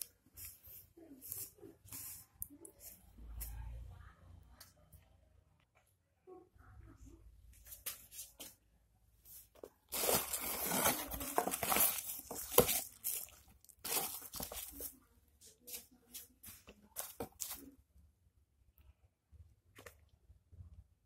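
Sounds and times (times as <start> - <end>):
cardboard rustling: 9.4 - 15.0, 15.7 - 17.7
bubble wrap crinkling: 9.7 - 15.0, 15.7 - 17.7
tape and cardboard ripping: 9.9 - 14.8.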